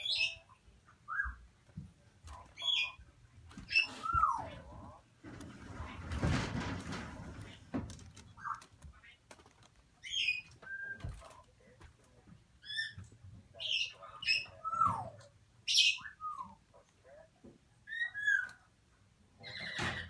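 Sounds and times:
parrot chicks squawking: 0:00.0 - 0:01.4, 0:02.4 - 0:04.6, 0:10.0 - 0:11.0, 0:12.6 - 0:16.6.

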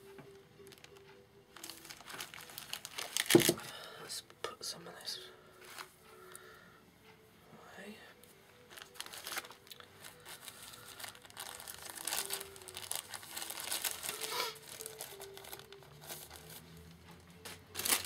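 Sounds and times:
plastic bag crinkling: 0:01.6 - 0:03.8, 0:08.7 - 0:16.6, 0:17.7 - 0:18.0.

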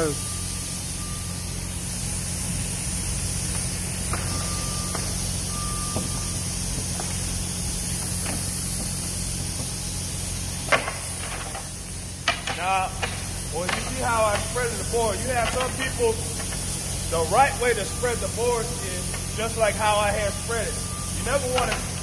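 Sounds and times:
constant hiss: 0:00.0 - 0:22.0
low machine hum: 0:00.0 - 0:22.0
high beep: 0:04.2 - 0:06.5, 0:17.2 - 0:22.0.

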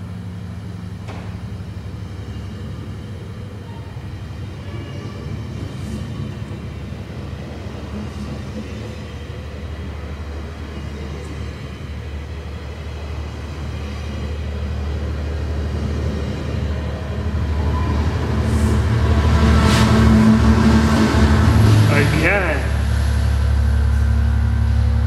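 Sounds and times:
locomotive diesel engine: 0:00.0 - 0:25.0
train coaches rolling on rails: 0:00.0 - 0:25.0.

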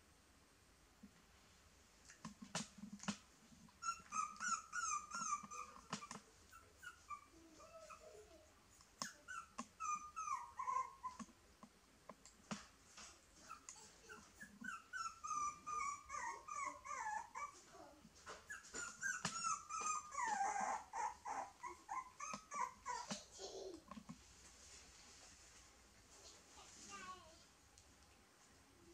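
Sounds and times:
puppy whining: 0:03.6 - 0:11.4, 0:13.4 - 0:24.1.

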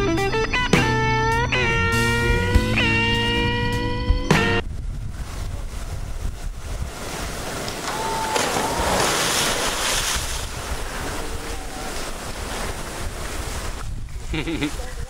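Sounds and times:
wind buffeting microphone: 0:01.5 - 0:15.0
water splashing: 0:05.2 - 0:15.0.

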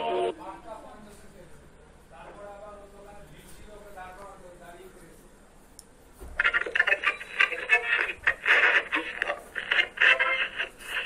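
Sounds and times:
tinny voice through radio speaker: 0:06.4 - 0:11.0.

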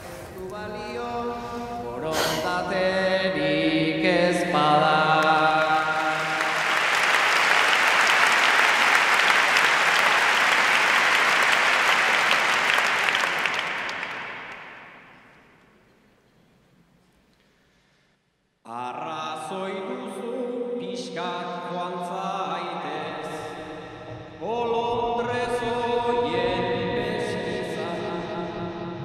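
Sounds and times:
crowd singing: 0:00.0 - 0:07.0, 0:22.6 - 0:29.0
loud applause: 0:05.2 - 0:15.6.

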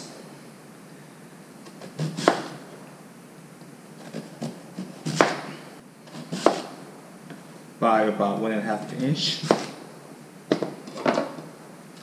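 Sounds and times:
knife chopping on cutting board: 0:01.8 - 0:02.6, 0:04.0 - 0:06.8, 0:09.3 - 0:09.8.

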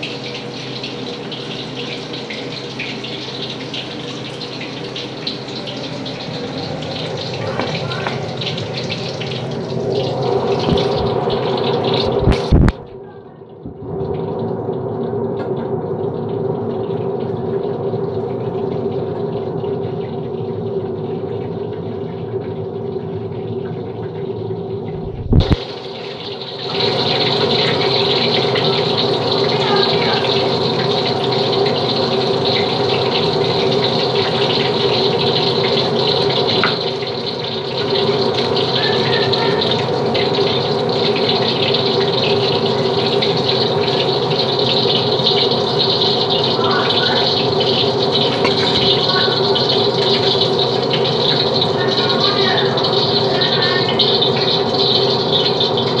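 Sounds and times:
steady hum: 0:00.0 - 0:25.8
fries sizzling in hot oil: 0:00.0 - 0:56.0.

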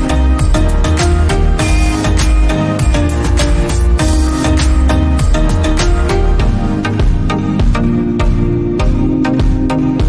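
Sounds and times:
background music with deep bass: 0:00.0 - 0:10.0.

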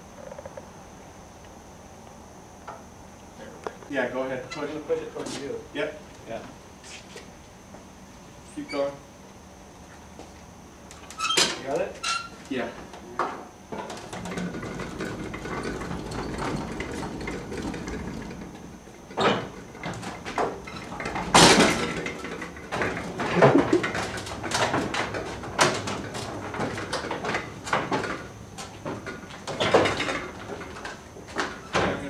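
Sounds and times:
hand truck rolling over pavement: 0:13.8 - 0:32.0.

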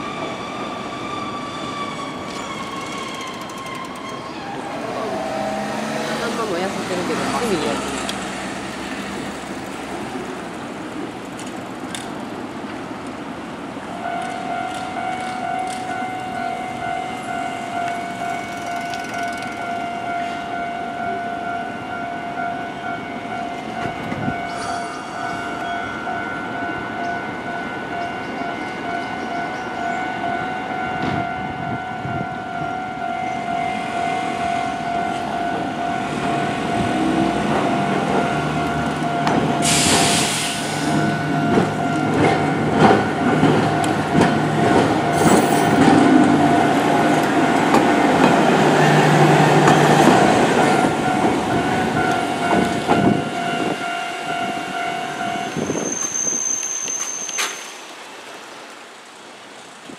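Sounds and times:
tram running noise: 0:00.0 - 0:58.1
street noise: 0:00.0 - 0:59.9
level crossing alarm ringing: 0:14.0 - 0:57.0.

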